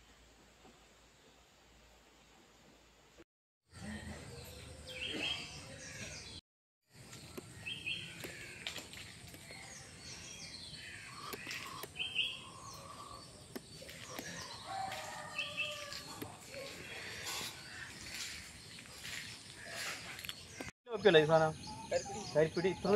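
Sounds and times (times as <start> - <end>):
outdoor background hiss: 0.0 - 3.2
birds chirping: 3.8 - 22.9.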